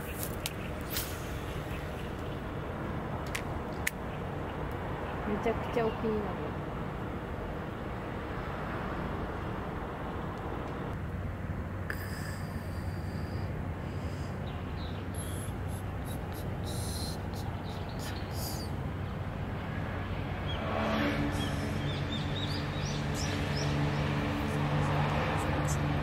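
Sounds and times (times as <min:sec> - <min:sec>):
small birds chirping: 0:00.0 - 0:02.6, 0:12.8 - 0:19.2, 0:21.4 - 0:25.9
low steady hum: 0:00.0 - 0:26.0
steady background hiss: 0:09.2 - 0:20.4
short high hissing bursts: 0:15.2 - 0:18.7.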